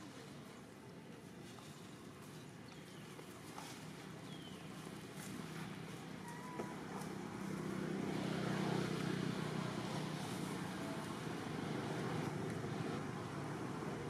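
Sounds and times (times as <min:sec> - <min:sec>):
motor vehicle engine hum: 0:03.7 - 0:14.0.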